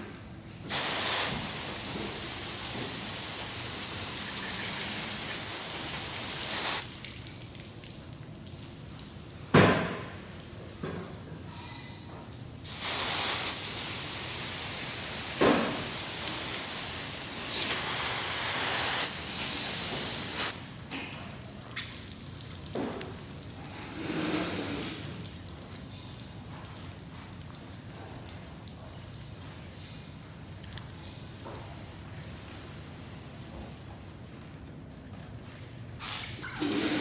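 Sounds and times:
water dripping and trickling: 0:00.1 - 0:11.3, 0:13.5 - 0:36.6
water hose spraying: 0:00.7 - 0:07.1, 0:12.6 - 0:20.6, 0:24.0 - 0:25.3, 0:36.0 - 0:37.0.

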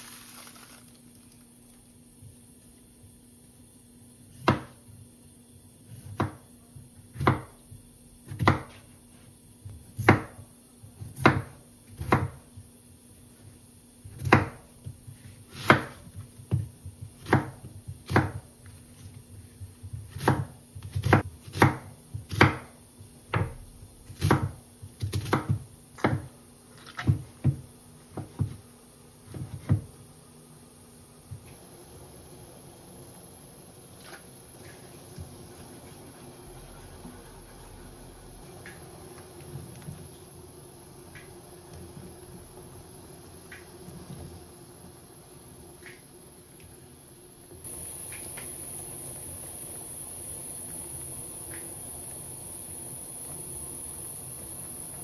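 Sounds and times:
knife chopping on wooden board: 0:04.4 - 0:04.8, 0:06.0 - 0:06.5, 0:07.1 - 0:07.6, 0:08.3 - 0:08.9, 0:10.0 - 0:10.4, 0:11.0 - 0:12.5, 0:14.1 - 0:18.5, 0:19.8 - 0:22.7, 0:23.3 - 0:28.6.

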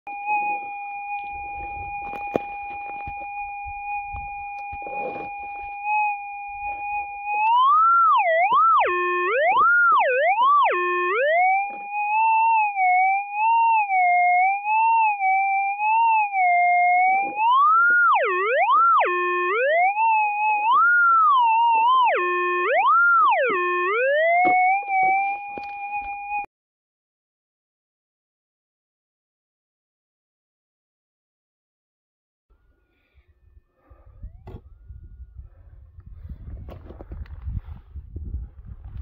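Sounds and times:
metal detector tone swooping: 0:00.1 - 0:26.5.

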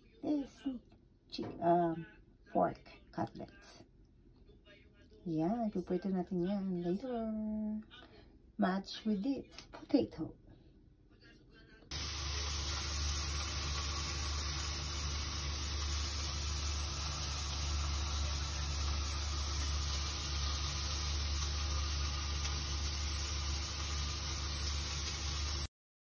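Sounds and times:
steady hiss: 0:11.9 - 0:25.7.

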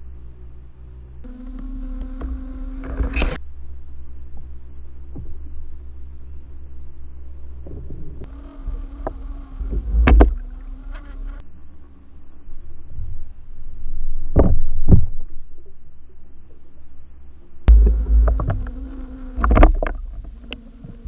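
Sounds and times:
low underwater hum: 0:00.0 - 0:21.0
loud dull thuds: 0:17.7 - 0:21.0.

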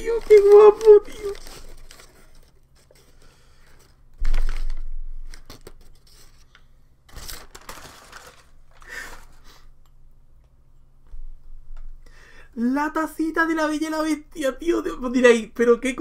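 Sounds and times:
wrapping tearing and crinkling: 0:00.0 - 0:09.6.

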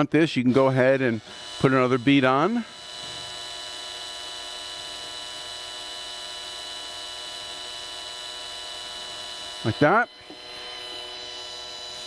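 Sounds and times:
cordless drill motor whine: 0:00.5 - 0:12.0.

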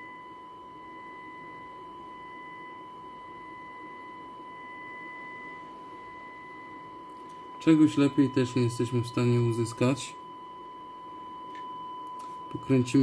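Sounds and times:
radio test tone: 0:04.5 - 0:10.2, 0:12.2 - 0:13.0.

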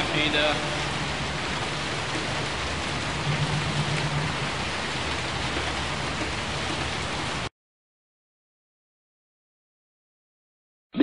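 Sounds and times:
steady rain falling: 0:00.0 - 0:07.5.

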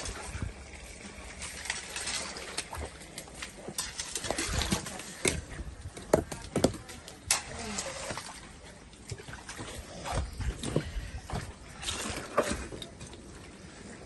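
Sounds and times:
spade scraping through wet sludge: 0:00.0 - 0:05.7, 0:07.2 - 0:13.3.

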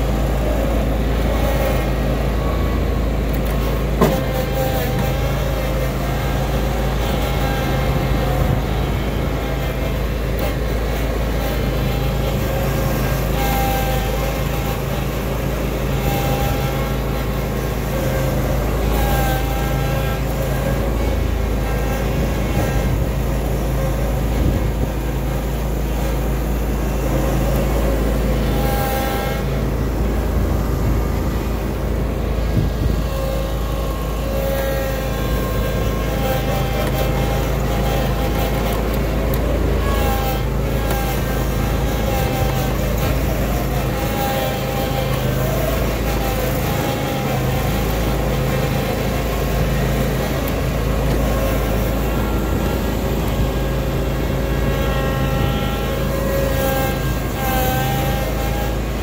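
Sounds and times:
mower engine humming: 0:00.0 - 0:59.0.

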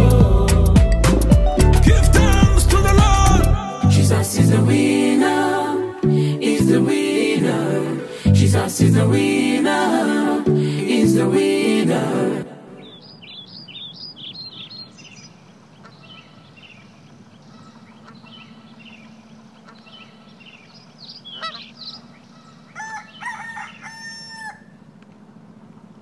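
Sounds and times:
small birds chirping: 0:12.8 - 0:26.0
rooster crowing: 0:22.4 - 0:24.8.

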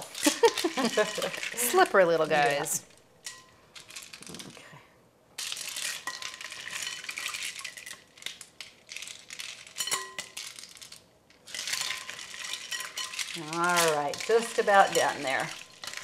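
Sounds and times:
spoon scraping in a bowl: 0:11.5 - 0:16.0.

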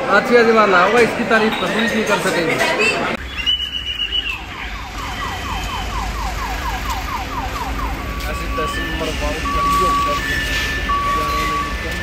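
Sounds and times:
electronic siren chirping: 0:03.2 - 0:12.0
steady alarm beep: 0:04.6 - 0:06.3, 0:07.6 - 0:12.0.

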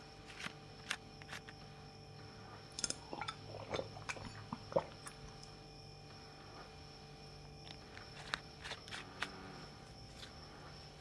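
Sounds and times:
refrigerator hum: 0:00.0 - 0:11.0
glass bottle clinking: 0:02.8 - 0:05.0.

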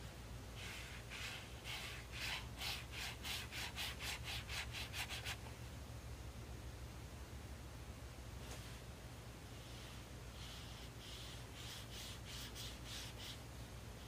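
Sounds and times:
brush scrubbing paper: 0:00.6 - 0:05.4, 0:09.6 - 0:13.4.

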